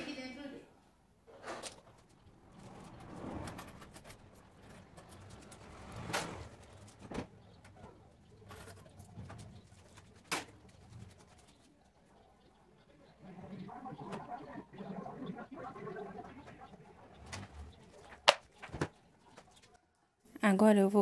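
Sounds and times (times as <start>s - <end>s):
pigeons cooing: 3.0s - 19.6s.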